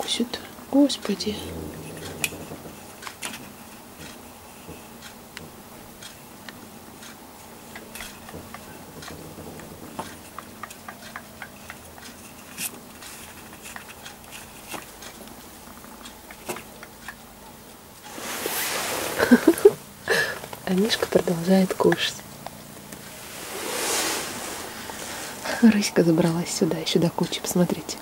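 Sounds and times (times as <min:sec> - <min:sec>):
fur rustling against microphone: 0:18.0 - 0:19.8, 0:22.9 - 0:26.0.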